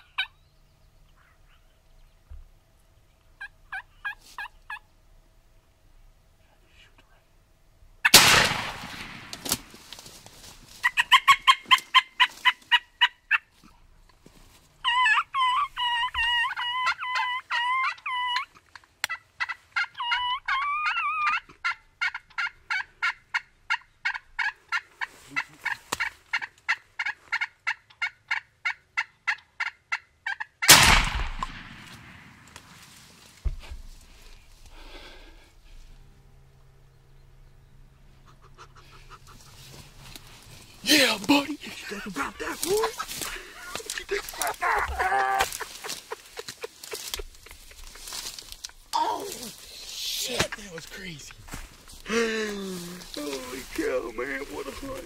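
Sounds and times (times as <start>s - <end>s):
turkeys gobbling: 0.0s - 0.3s, 3.4s - 4.9s, 10.7s - 13.5s, 14.8s - 31.6s, 38.0s - 51.6s
shotgun blasts: 8.1s - 9.7s, 30.7s - 32.6s.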